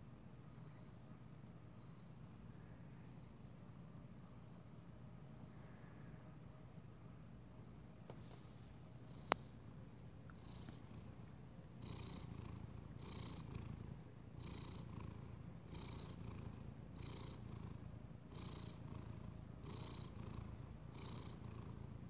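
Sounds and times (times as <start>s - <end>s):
cat purring: 3.0s - 4.7s, 6.5s - 22.0s.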